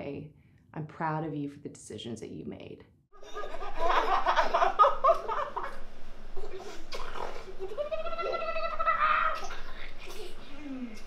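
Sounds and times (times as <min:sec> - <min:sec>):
baby squealing: 0:06.5 - 0:09.8
woman and toddler laughing: 0:07.5 - 0:10.4.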